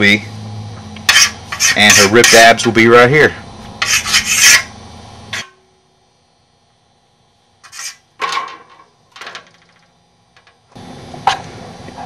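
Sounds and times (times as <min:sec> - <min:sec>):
marker scratching on steel sheet: 0:01.1 - 0:02.4, 0:03.8 - 0:04.7, 0:07.6 - 0:08.0.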